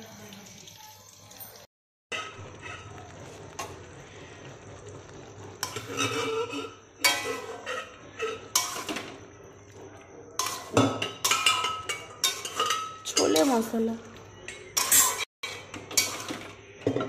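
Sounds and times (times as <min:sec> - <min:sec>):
metal spatula scraping a pan: 0:02.1 - 0:09.4, 0:10.4 - 0:17.0
spatula clanking against pan: 0:05.6 - 0:09.2, 0:10.4 - 0:13.7, 0:14.4 - 0:17.0.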